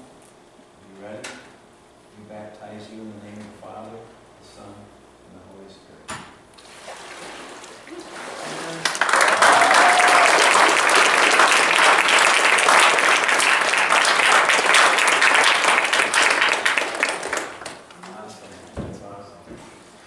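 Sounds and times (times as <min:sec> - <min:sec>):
crowd applauding: 0:08.7 - 0:18.2.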